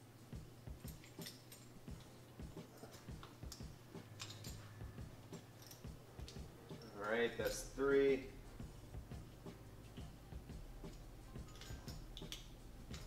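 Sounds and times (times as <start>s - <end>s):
steady low hum: 0.0s - 13.0s
allen key clicking on metal: 2.8s - 4.7s, 10.9s - 13.0s.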